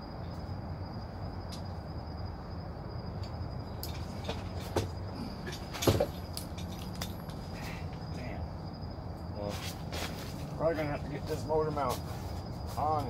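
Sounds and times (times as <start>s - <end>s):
faint steady high tone: 0.0s - 9.8s
steady low hum: 0.0s - 13.0s
metal knocks and clanks: 3.8s - 7.1s.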